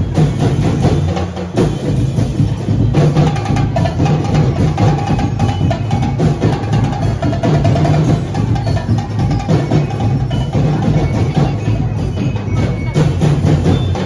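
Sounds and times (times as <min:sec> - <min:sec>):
heavy drumming and percussion: 0:00.0 - 0:14.0.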